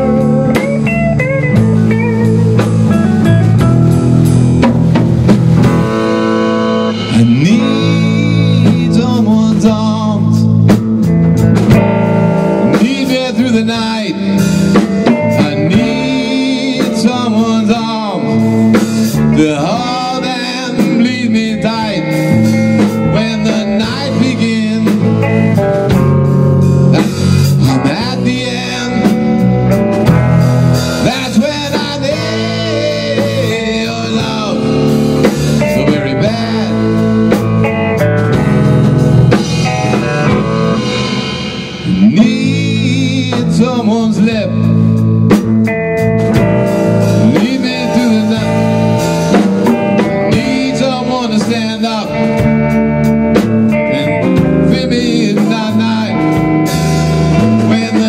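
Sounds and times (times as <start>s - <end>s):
bending guitar lead line: 0.0s - 58.0s
drum kit: 0.0s - 58.0s
electric guitars: 0.0s - 58.0s.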